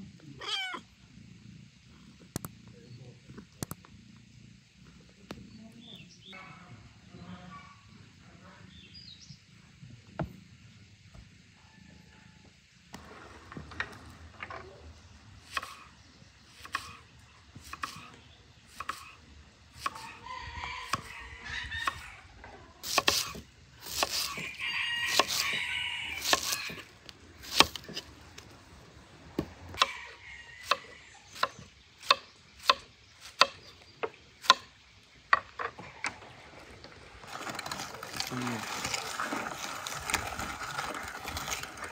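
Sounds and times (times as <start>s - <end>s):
rooster crowing: 20.0s - 22.2s, 24.4s - 26.8s, 29.7s - 31.3s.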